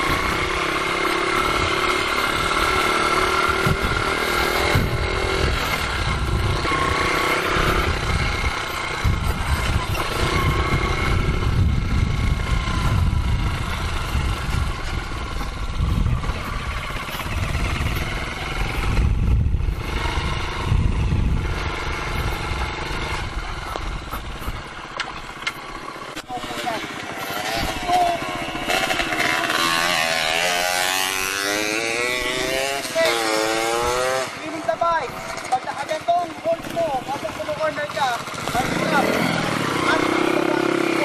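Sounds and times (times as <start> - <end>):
wind rumbling on microphone: 0.0 - 26.0
dirt bike engine running: 0.0 - 41.0.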